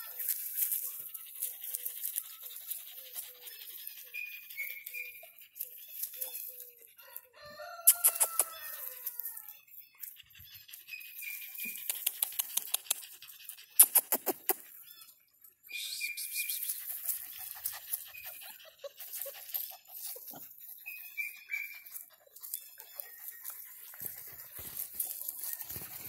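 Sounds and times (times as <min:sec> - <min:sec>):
rustling in dry grass: 0:00.0 - 0:04.0, 0:21.2 - 0:26.0.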